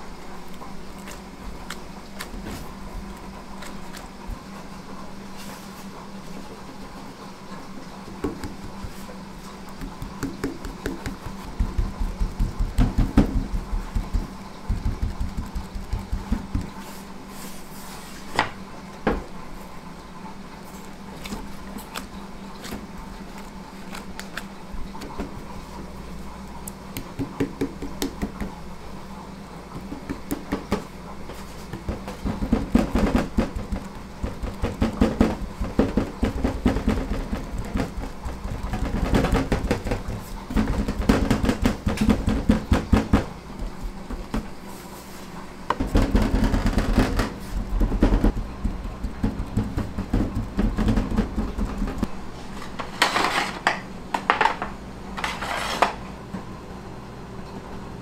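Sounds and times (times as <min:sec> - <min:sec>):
kitchen hum: 0:00.0 - 0:58.0
fingers patting dough: 0:08.2 - 0:16.9, 0:26.6 - 0:28.6, 0:29.7 - 0:44.6, 0:45.7 - 0:52.1.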